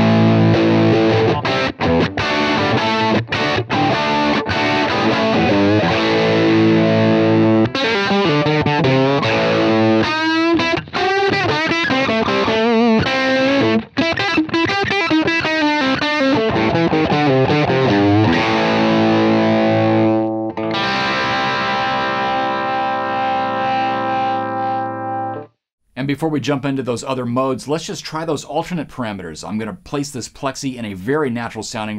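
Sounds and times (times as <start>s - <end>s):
overdriven electric guitar: 0.0s - 25.6s.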